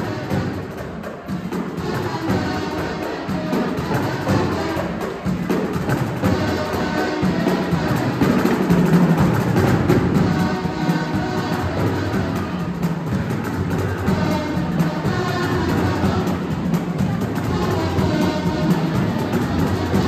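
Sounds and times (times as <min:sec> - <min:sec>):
snare and bass drums: 0:00.0 - 0:20.0.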